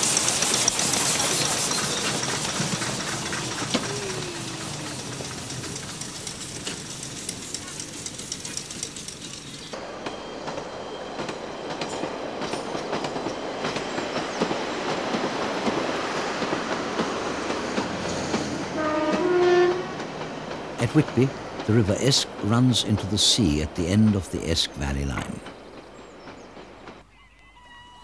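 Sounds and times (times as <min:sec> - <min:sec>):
train clickety-clack on rails: 0:00.0 - 0:27.0
train horn: 0:18.7 - 0:20.0.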